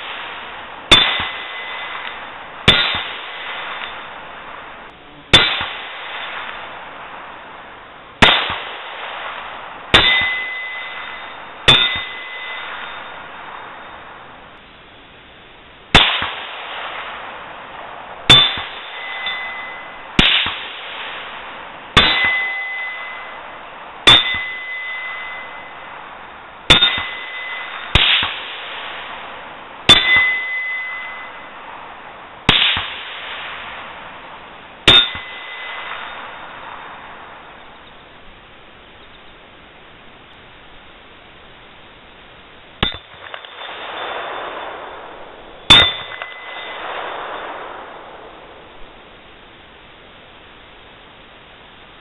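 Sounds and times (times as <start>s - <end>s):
bullets clanging on steel target: 0.9s - 3.2s, 10.0s - 13.3s, 18.3s - 20.8s, 22.0s - 23.4s, 24.1s - 25.9s, 26.7s - 28.6s, 29.9s - 31.6s, 34.9s - 36.4s, 42.8s - 43.9s, 45.7s - 47.5s.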